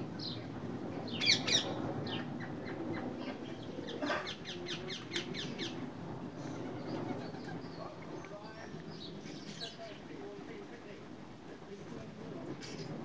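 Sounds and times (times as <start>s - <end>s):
parakeets chattering: 1.1s - 10.0s.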